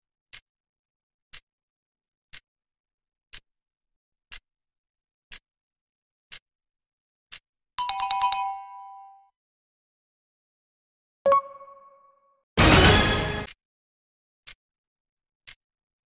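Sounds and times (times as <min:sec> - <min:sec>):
clock ticking: 0:02.3 - 0:02.5, 0:03.3 - 0:03.5.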